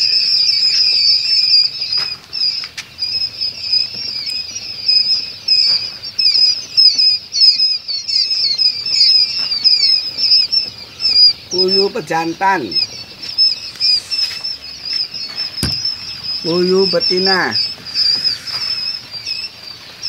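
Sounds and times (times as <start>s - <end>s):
quail chicks peeping: 0.0s - 20.0s.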